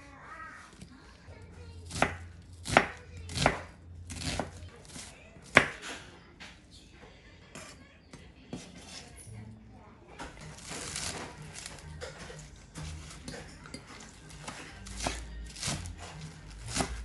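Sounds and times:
knife chopping on cutting board: 1.9s - 5.9s, 14.3s - 17.0s.

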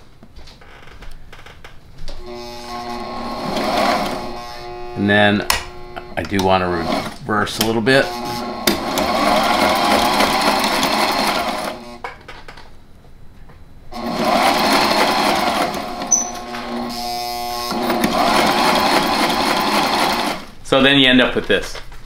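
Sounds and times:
sewing machine stitching: 2.2s - 12.0s, 14.0s - 20.5s.

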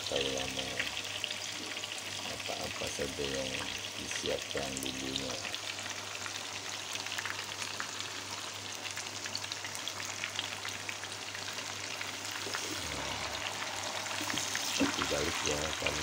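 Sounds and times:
tofu sizzling in hot oil: 0.8s - 2.5s, 4.9s - 15.5s.

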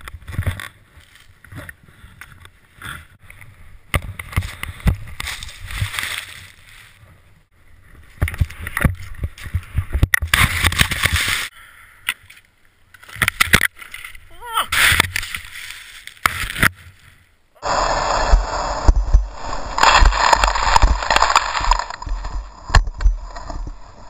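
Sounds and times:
skis rushing through powder snow: 17.6s - 22.7s.

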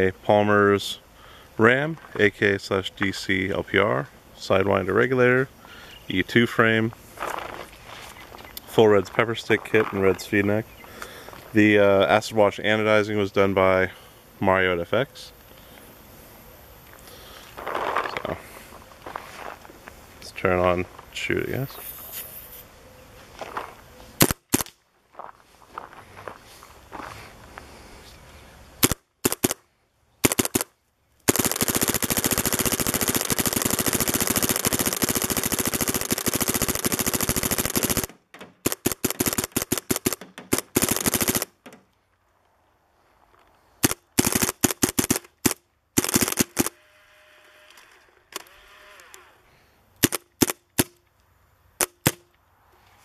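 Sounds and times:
paintball marker firing: 24.2s - 24.8s, 28.8s - 29.6s, 30.2s - 30.7s, 31.3s - 41.9s, 43.8s - 46.8s, 50.0s - 51.0s, 51.8s - 52.3s.

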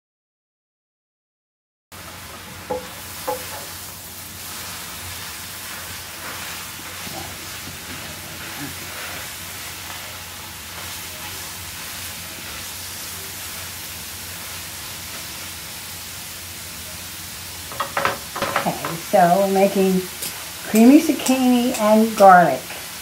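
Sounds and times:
zucchini sizzling in butter: 2.0s - 23.0s
spatula tossing food: 4.4s - 15.8s.

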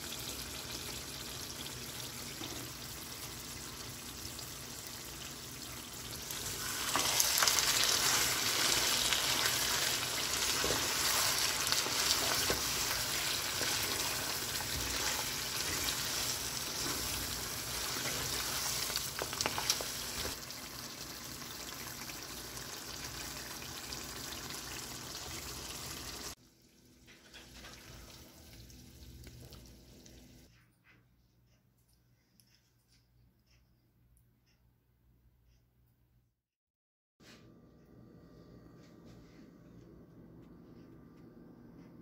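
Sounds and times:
meat sizzling in a pan: 0.0s - 26.4s
spatula scraping a pan: 6.7s - 20.4s.

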